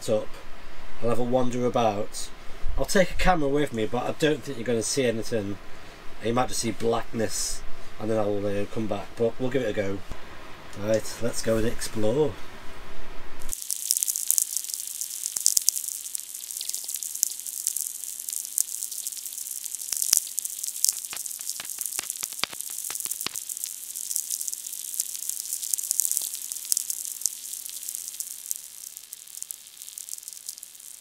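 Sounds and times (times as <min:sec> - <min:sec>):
crackling static hiss: 0:00.0 - 0:31.0
sharp clicks: 0:14.0 - 0:31.0.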